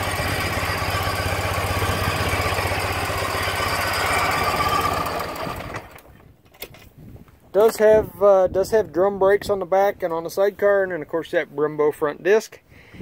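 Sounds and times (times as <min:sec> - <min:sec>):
motorcycle engine idling: 0:00.0 - 0:06.1.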